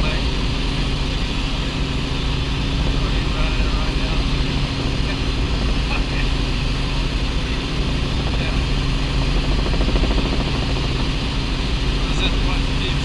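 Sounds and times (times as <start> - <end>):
helicopter engine and rotor drone: 0.0 - 13.0.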